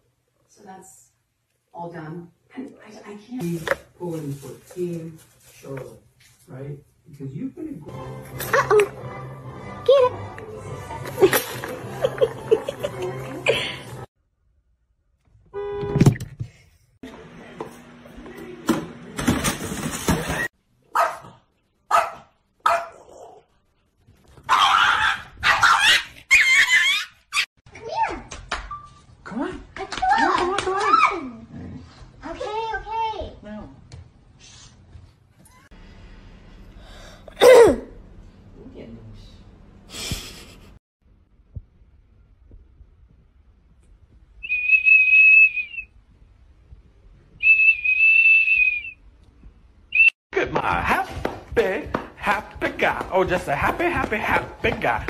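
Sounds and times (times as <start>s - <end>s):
high whistle tones: 44.4s - 46.0s, 47.4s - 49.1s, 49.9s - 50.2s.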